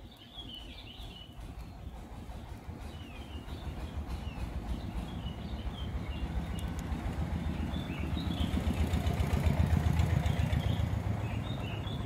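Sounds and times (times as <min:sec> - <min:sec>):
canaries chirping: 0:02.8 - 0:08.6.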